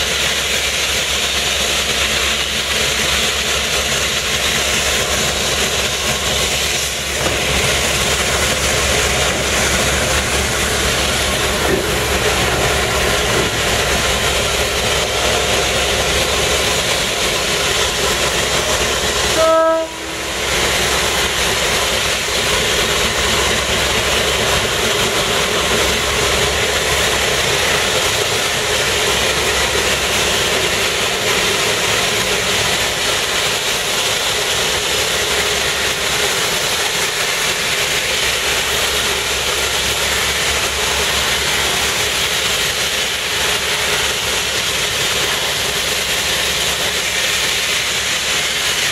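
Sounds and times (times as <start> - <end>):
diesel locomotive running: 0.0 - 48.9
locomotive horn toot: 19.3 - 20.4.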